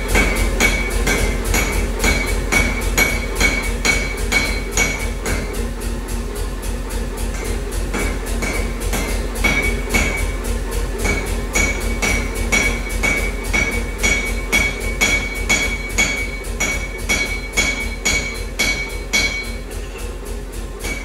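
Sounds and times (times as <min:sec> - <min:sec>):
steady low hum: 0:00.0 - 0:21.0
rhythmic metallic strikes ringing: 0:07.3 - 0:20.0.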